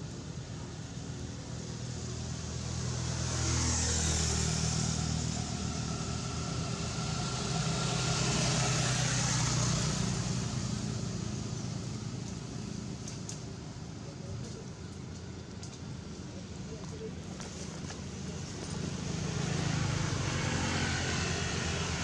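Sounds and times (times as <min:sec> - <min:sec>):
traffic passing: 0:00.0 - 0:22.0.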